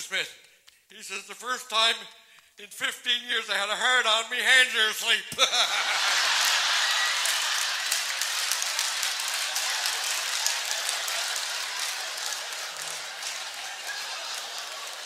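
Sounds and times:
audience laughing: 0:05.4 - 0:15.0
audience applauding: 0:05.8 - 0:15.0.

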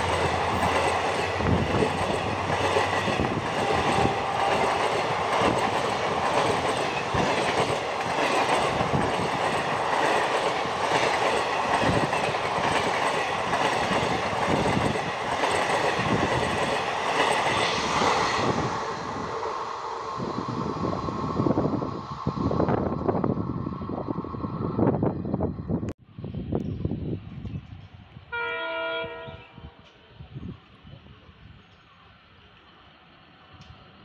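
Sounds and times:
train coaches rushing past: 0:00.0 - 0:25.3.

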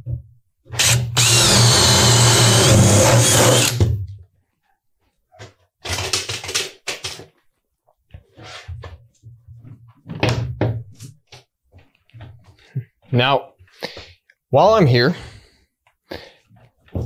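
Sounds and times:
cordless drill whining through wood: 0:00.8 - 0:03.9.

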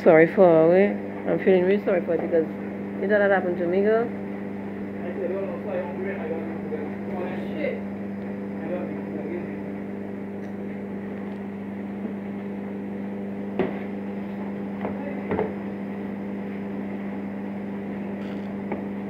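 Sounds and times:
laundromat machines humming: 0:00.0 - 0:19.0.

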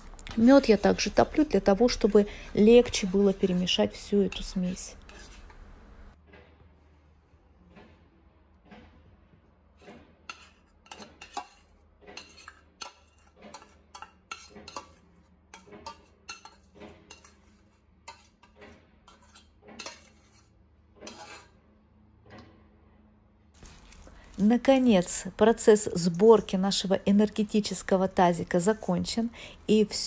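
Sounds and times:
metal spoon scraping a saucepan: 0:00.6 - 0:05.7, 0:09.8 - 0:21.6.

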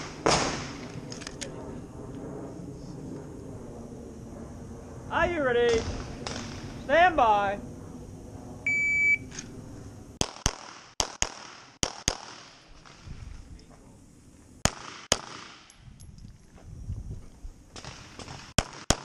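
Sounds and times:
pistol shots: 0:10.2 - 0:13.1, 0:14.6 - 0:15.7, 0:17.8 - 0:19.0.

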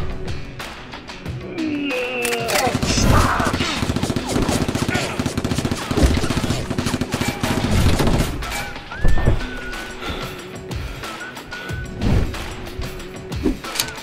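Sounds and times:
toy blaster firing rapidly: 0:02.6 - 0:08.2.

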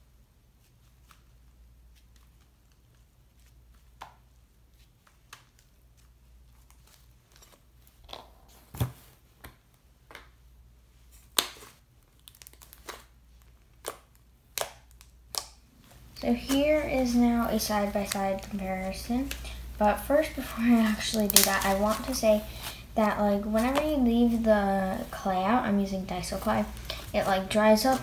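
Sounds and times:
clay slime popping and crackling: 0:11.2 - 0:25.1.

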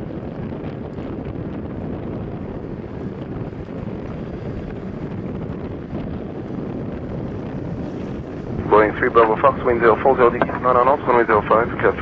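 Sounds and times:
jet engines running: 0:00.0 - 0:12.0
wind on microphone: 0:00.0 - 0:12.0.

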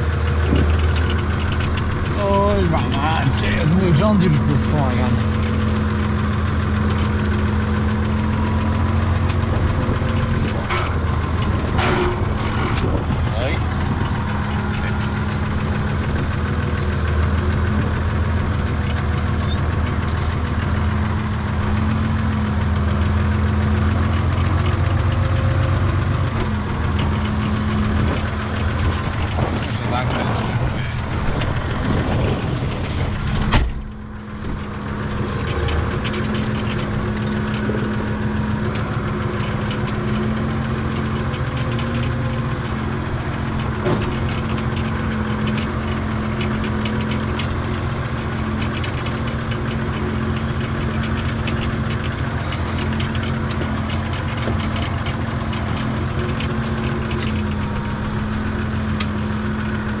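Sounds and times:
tractor diesel engine running: 0:00.0 - 1:00.0
cab door banging shut: 0:33.4 - 0:33.9.

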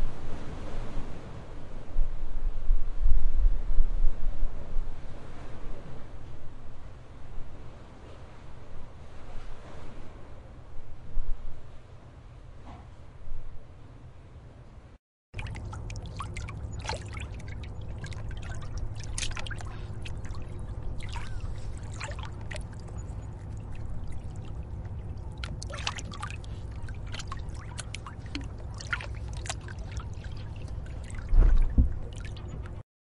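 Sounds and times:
sea waves breaking in surf: 0:00.0 - 0:02.0, 0:15.4 - 0:32.8.

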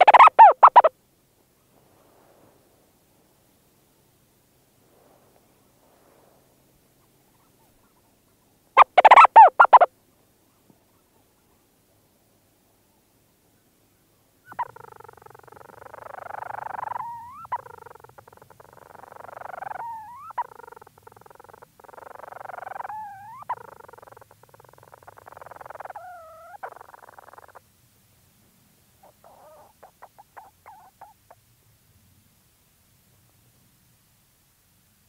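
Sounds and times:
bird purring churr: 0:00.0 - 0:00.9, 0:08.8 - 0:09.9, 0:14.5 - 0:27.6, 0:29.0 - 0:31.4
chattering bird notes: 0:00.0 - 0:00.9, 0:08.8 - 0:09.9, 0:14.5 - 0:27.6, 0:29.0 - 0:31.3.

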